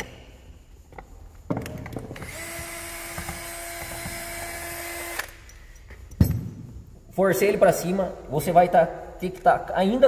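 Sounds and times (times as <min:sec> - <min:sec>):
electric drill running: 0:02.2 - 0:05.4.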